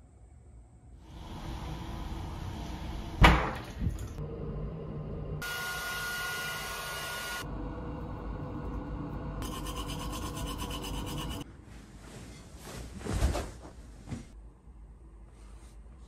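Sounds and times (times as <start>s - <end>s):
toothbrush scrubbing teeth: 9.4s - 11.4s
bedding rustling: 11.6s - 14.4s.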